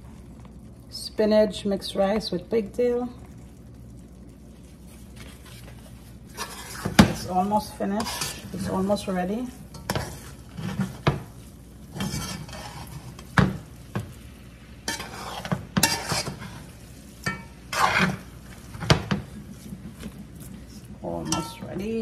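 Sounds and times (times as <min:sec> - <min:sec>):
light sizzling: 0:00.0 - 0:22.0
metal spoon scraping a pot: 0:06.3 - 0:09.1, 0:11.9 - 0:13.3, 0:14.9 - 0:18.3, 0:21.1 - 0:22.0.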